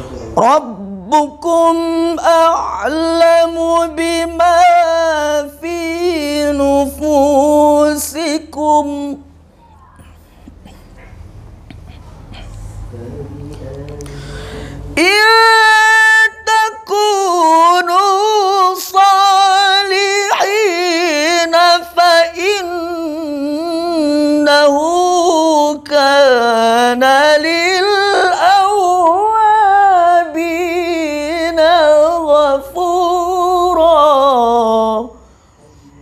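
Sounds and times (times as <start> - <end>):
man reciting melodically: 0.0 - 9.4, 12.8 - 36.0
short breaths: 14.0 - 15.0, 35.1 - 36.0.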